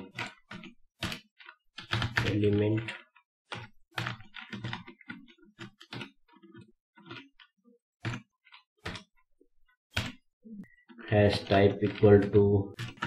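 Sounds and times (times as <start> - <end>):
typing on computer keyboard: 0.0 - 7.4, 8.0 - 9.1, 11.3 - 13.0.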